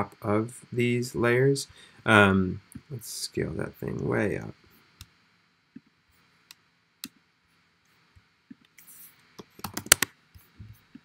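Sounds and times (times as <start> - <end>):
computer keyboard and mouse clicks: 9.4 - 10.1.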